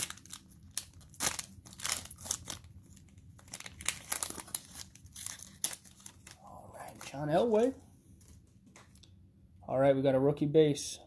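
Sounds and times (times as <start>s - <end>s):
foil wrapper crinkling: 0.0s - 8.4s
cards rustling: 0.0s - 9.0s.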